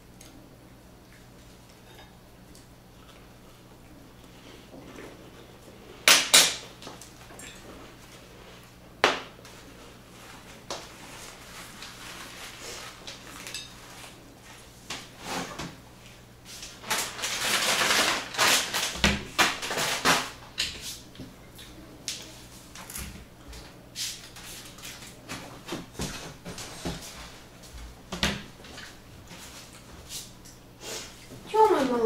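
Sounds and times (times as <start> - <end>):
rustling and chair scraping: 6.6 - 32.0.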